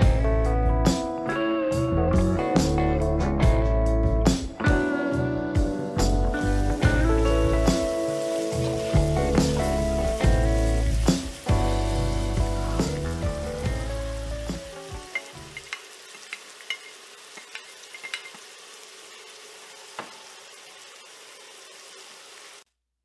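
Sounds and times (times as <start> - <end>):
background music: 0.0 - 15.8
food sizzling in a skillet: 6.0 - 22.6.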